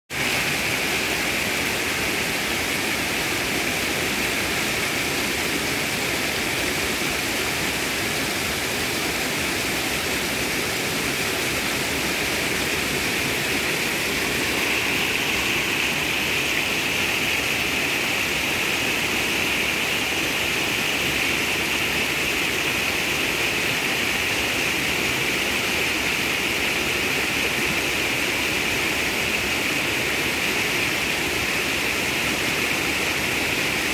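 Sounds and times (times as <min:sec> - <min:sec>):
creek water rushing over boulders: 0:00.1 - 0:33.9.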